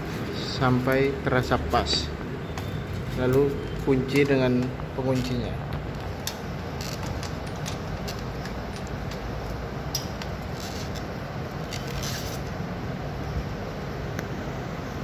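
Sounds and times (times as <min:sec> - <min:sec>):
background hiss and hum: 0:00.0 - 0:15.0
wing nut clicks and scrapes: 0:06.0 - 0:12.5.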